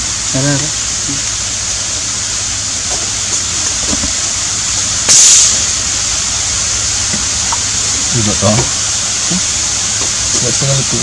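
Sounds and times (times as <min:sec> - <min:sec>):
steady background hiss: 0:00.0 - 0:11.0
short hiss: 0:03.0 - 0:10.5
air rifle shot: 0:05.1 - 0:05.8.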